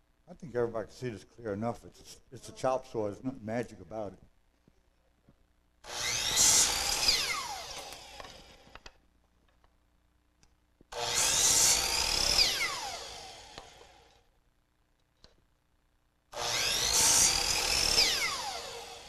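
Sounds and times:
electric chop saw cutting wood: 5.8 - 8.9, 10.9 - 14.2, 16.3 - 19.0.

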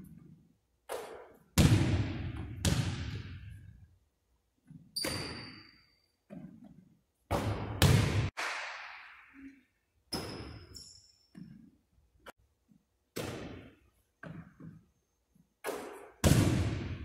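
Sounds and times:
basketball hitting the hoop: 0.9 - 3.5, 7.3 - 8.3, 15.6 - 17.0
basketball hitting wooden floor: 0.9 - 3.5, 6.3 - 8.3, 13.1 - 14.8.

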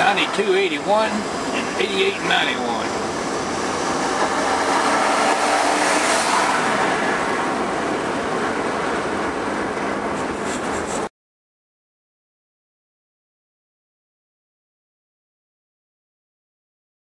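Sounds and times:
wind and road noise in car: 0.0 - 11.1.

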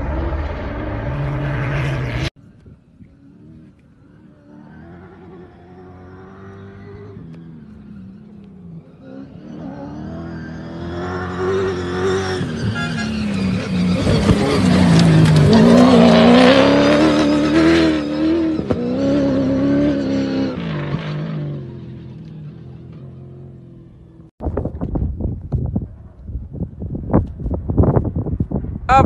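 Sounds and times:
rally car engine at full throttle: 0.0 - 29.0.

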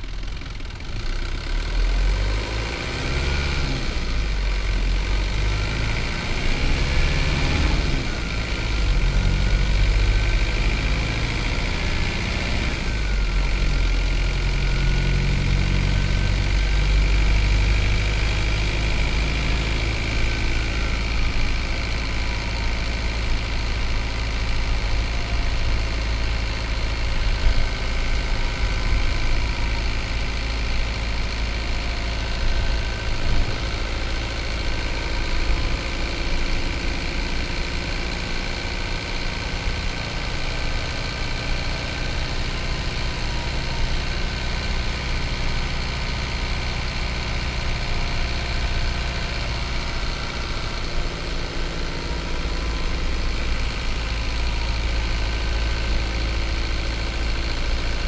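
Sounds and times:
diesel bus engine running: 0.0 - 58.0.

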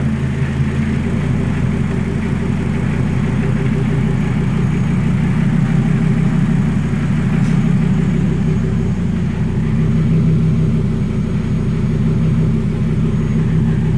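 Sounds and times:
car engine idling: 0.0 - 13.9.

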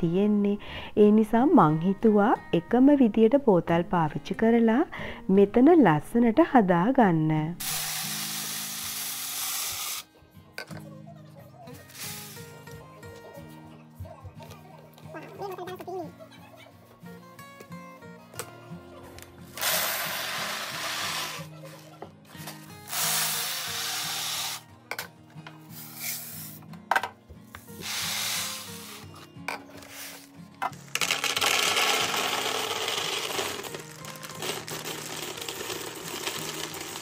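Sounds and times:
dry food pouring into bottles: 7.6 - 10.1, 11.8 - 12.6, 19.6 - 21.5, 22.9 - 24.6, 27.8 - 29.1, 29.9 - 37.0.

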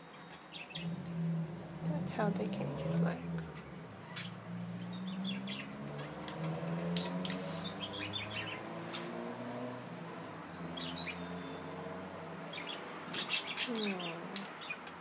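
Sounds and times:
budgerigars chirping: 0.5 - 2.4, 3.0 - 8.7, 10.6 - 11.8, 12.5 - 14.9
steady low hum: 0.6 - 7.0.

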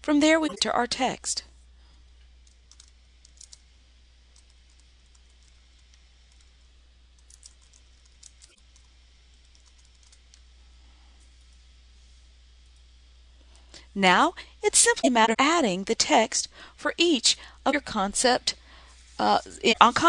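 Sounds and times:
computer keyboard typing: 2.7 - 3.6, 7.2 - 10.2.

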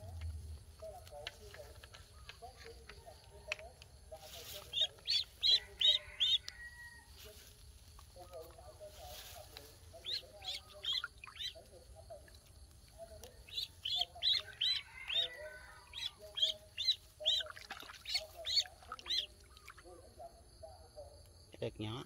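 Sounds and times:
duckling peeping: 4.5 - 6.5, 10.0 - 11.6, 13.0 - 19.8.

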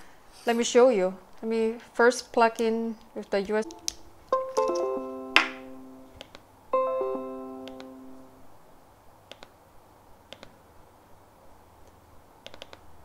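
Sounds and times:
plucked note ringing: 3.6 - 6.2, 6.8 - 8.5.

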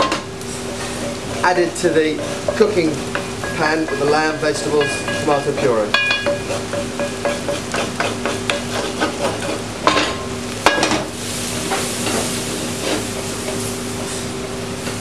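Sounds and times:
metal spoon scraping pan: 0.0 - 10.1
sizzling in saucepan: 0.0 - 15.0
pan knocking on stove: 2.2 - 11.1.

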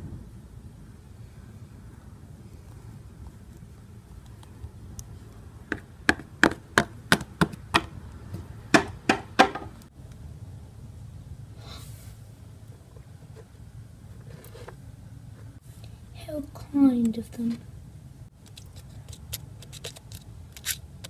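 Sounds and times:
knocking on hard surface: 8.7 - 9.7.

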